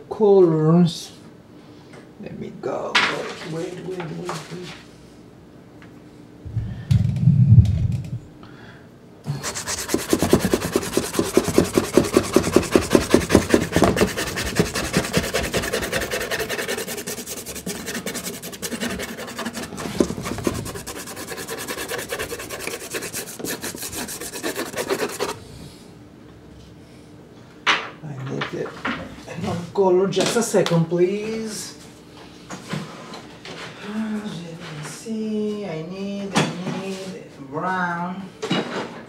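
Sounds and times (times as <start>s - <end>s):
pastel scraping on card: 9.3s - 25.4s.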